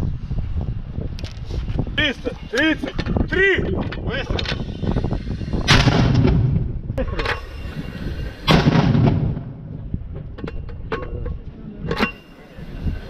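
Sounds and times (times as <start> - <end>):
mortar firing bang: 8.5 - 9.6.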